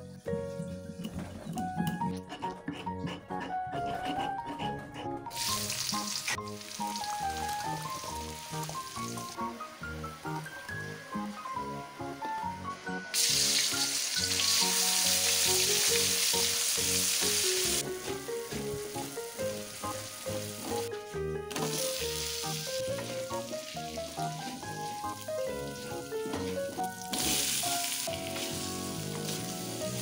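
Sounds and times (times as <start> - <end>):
background music: 0.0 - 30.0
food sizzling in hot oil: 5.3 - 11.8, 12.9 - 30.0.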